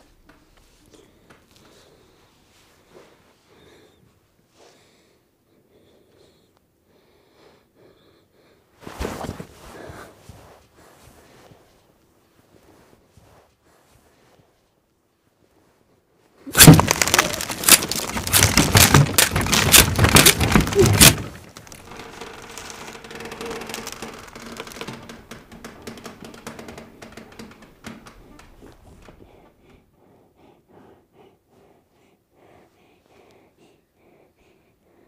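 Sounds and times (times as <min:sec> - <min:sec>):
banging and cracking: 0:16.5 - 0:29.2.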